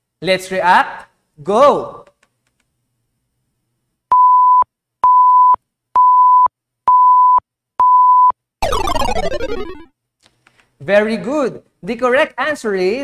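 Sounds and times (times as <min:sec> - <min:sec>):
countdown timer beeps: 0:06.0 - 0:09.9.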